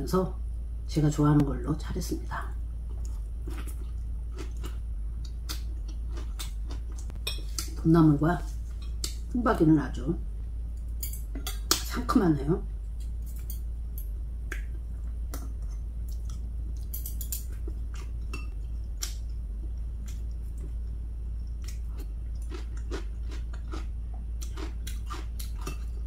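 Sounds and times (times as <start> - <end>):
steady low hum: 0.0 - 26.0
person chewing: 2.9 - 7.8, 14.5 - 26.0
chopsticks clicking against bowls: 15.3 - 19.3.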